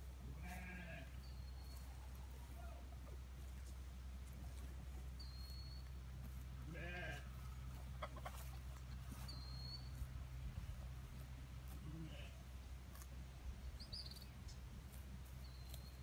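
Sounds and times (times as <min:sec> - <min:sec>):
steady low rumble: 0:00.0 - 0:16.0
young animal bleating: 0:00.4 - 0:01.2, 0:06.6 - 0:07.4, 0:11.7 - 0:12.4.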